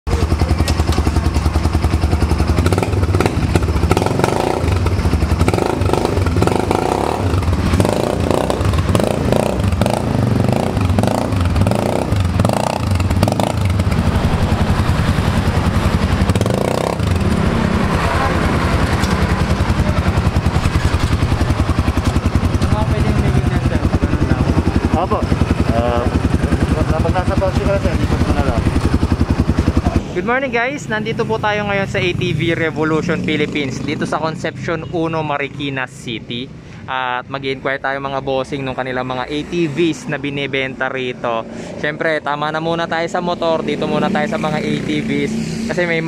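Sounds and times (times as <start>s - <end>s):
quad engine running: 0.1s - 30.3s.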